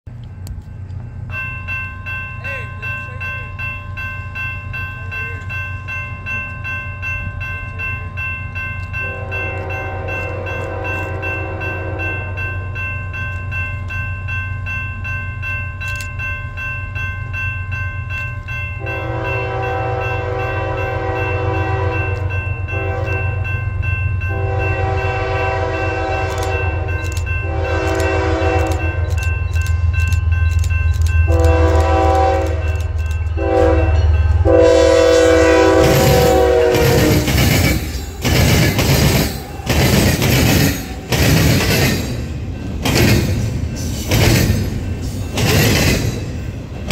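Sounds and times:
locomotive air horn blasts: 0:09.0 - 0:12.3, 0:18.8 - 0:23.4, 0:24.3 - 0:29.1, 0:31.3 - 0:37.4
train wheels clattering over rails: 0:35.2 - 0:46.9.

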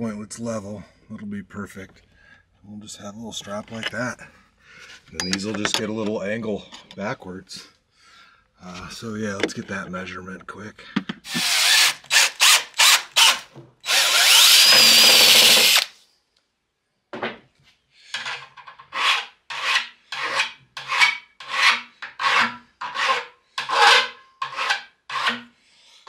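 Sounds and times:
cordless drill boring metal: 0:11.3 - 0:15.9
hand file rasping metal: 0:18.1 - 0:25.6.

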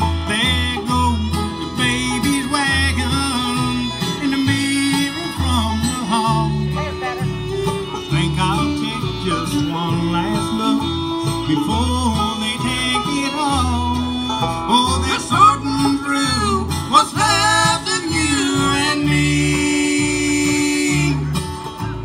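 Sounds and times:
banjo: 0:00.0 - 0:22.0
bass notes: 0:00.0 - 0:22.0
live country band playing: 0:00.0 - 0:22.0.

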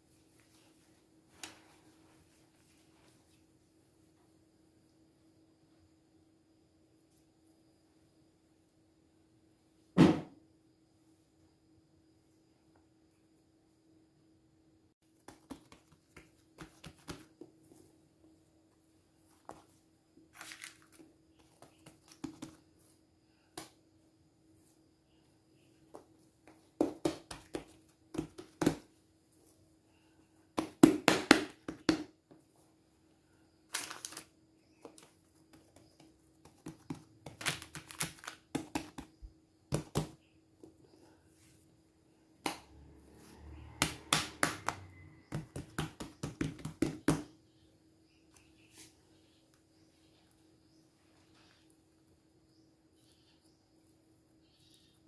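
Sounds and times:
faint steady hum: 0:00.0 - 0:30.8, 0:31.4 - 0:55.0
hands patting dough: 0:15.0 - 0:17.8, 0:19.2 - 0:23.9, 0:25.8 - 0:29.1, 0:30.5 - 0:32.6, 0:33.7 - 0:40.8, 0:43.8 - 0:47.4.

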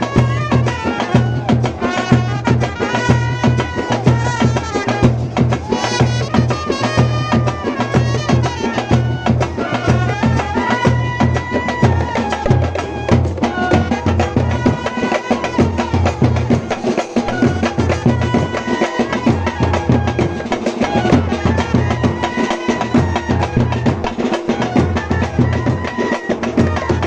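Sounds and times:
bass drum beat: 0:00.0 - 0:14.9
street brass band playing: 0:00.0 - 0:27.0.

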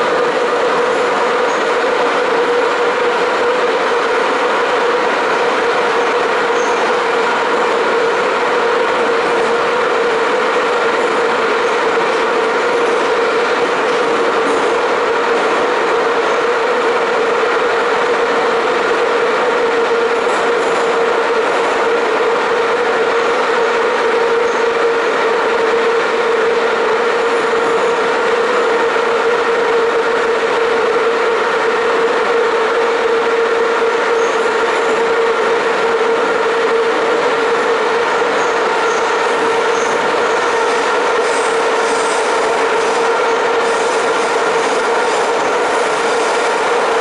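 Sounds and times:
steady whine: 0:00.0 - 0:47.0
train wheels rumbling on rail: 0:00.0 - 0:47.0.

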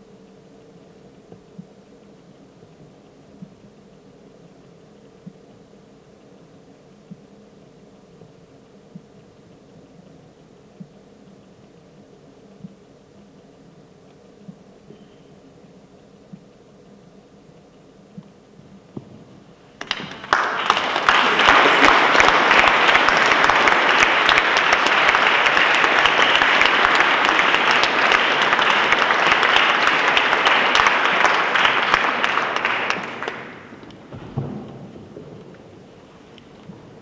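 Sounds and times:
audience applauding: 0:19.8 - 0:34.5.

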